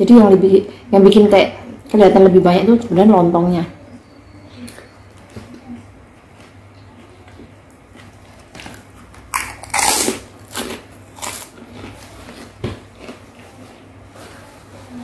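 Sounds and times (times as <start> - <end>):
chewing: 4.6 - 13.8
crunching bite: 8.6 - 12.0.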